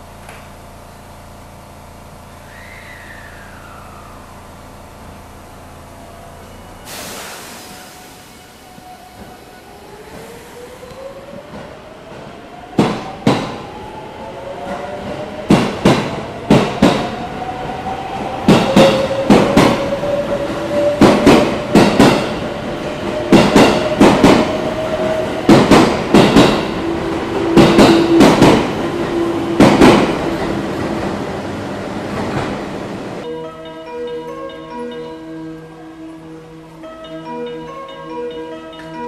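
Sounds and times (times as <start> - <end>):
electric train motors whining: 2.3 - 11.4
train wheels clacking over rail joints: 25.4 - 26.8, 27.4 - 28.8.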